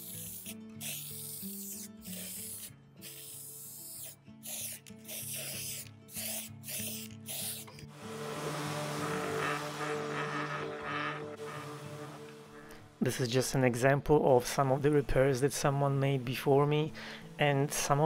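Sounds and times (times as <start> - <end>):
spray paint can hissing: 0.0 - 7.9
background music: 0.1 - 18.0
orbital sander running: 7.9 - 12.8.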